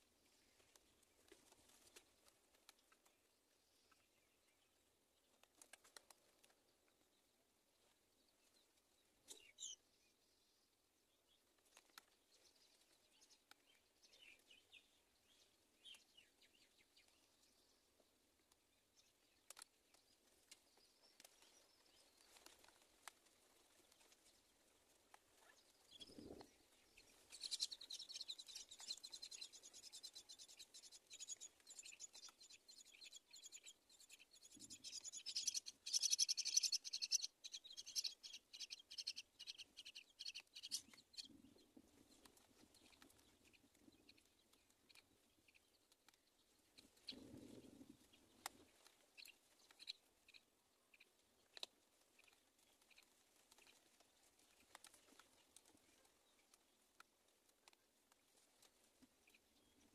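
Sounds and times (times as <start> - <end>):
faint ticks: 18.4 - 21.6, 48.4 - 59.4
nestlings begging calls: 27.3 - 41.3.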